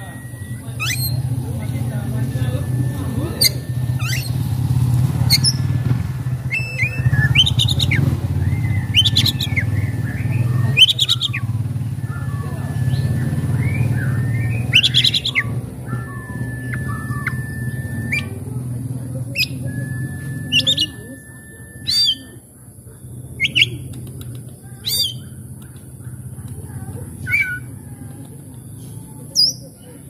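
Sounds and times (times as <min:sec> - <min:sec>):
bird whistled song: 0:00.0 - 0:05.8, 0:06.4 - 0:26.1, 0:27.2 - 0:27.8, 0:28.6 - 0:30.0
harsh rasping bird calls: 0:00.0 - 0:30.0
steady low hum: 0:00.0 - 0:30.0.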